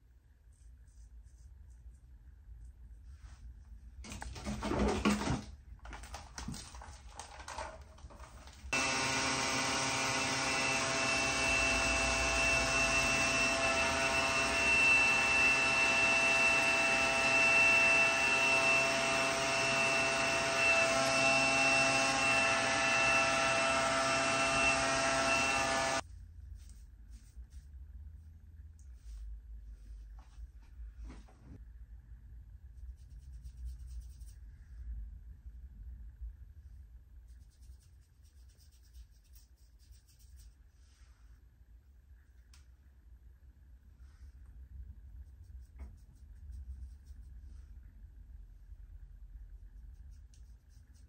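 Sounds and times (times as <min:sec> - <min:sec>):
hair dryer running with whine: 0:08.7 - 0:26.0
hand rustling in hair: 0:26.5 - 0:27.7.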